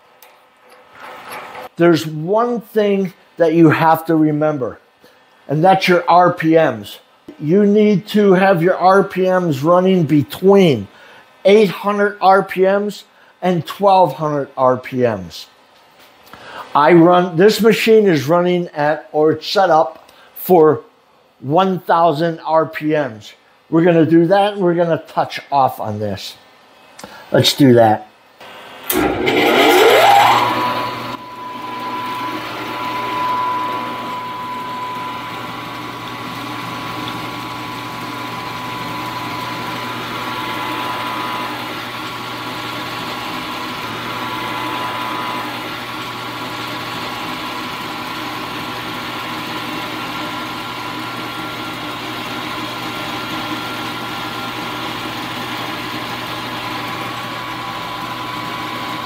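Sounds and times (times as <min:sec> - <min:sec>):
drill spindle motor whining: 0:28.4 - 0:59.0.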